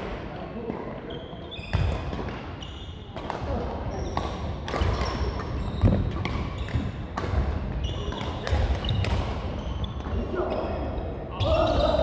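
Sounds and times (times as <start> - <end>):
shoes squeaking on court floor: 0.7 - 12.0
rackets striking shuttlecock: 4.1 - 9.4.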